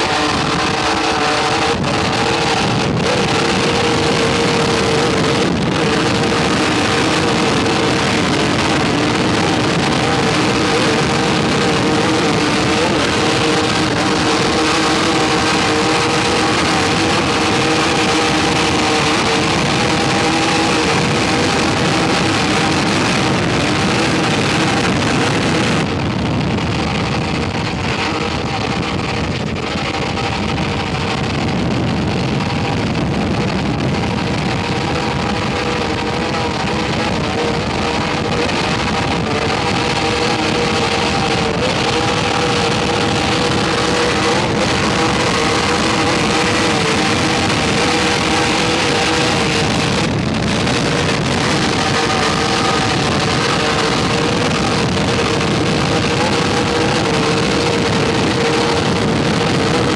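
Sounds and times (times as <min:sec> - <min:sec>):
powerboat engines droning: 0:00.0 - 0:59.9.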